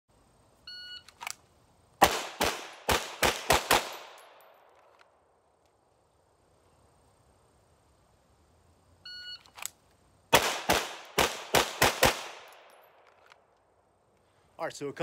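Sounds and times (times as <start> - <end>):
pistol shots: 2.0 - 4.5, 10.3 - 12.8.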